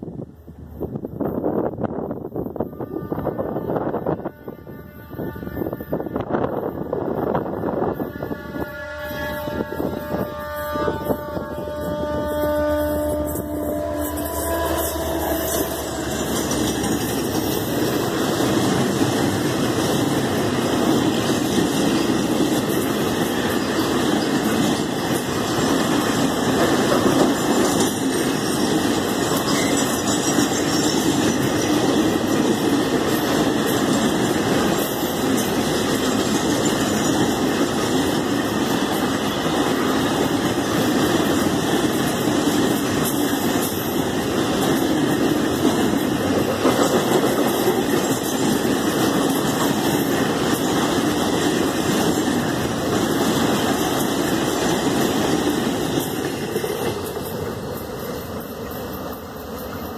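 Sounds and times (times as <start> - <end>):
train wheels rumbling on rails: 0.0 - 59.9
train horn: 2.5 - 6.7, 7.8 - 16.6.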